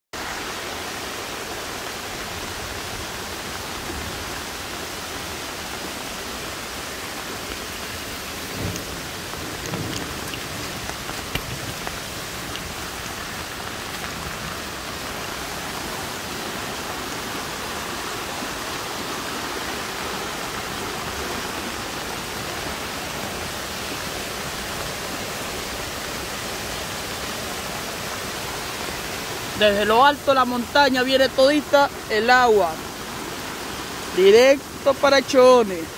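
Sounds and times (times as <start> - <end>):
floodwater rushing: 0.2 - 35.9
heavy rain hissing: 0.2 - 35.9.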